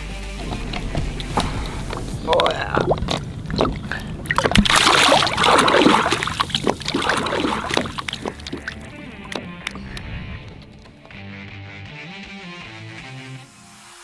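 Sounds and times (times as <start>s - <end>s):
water splashing: 0.3s - 11.1s
water dripping: 0.4s - 11.0s.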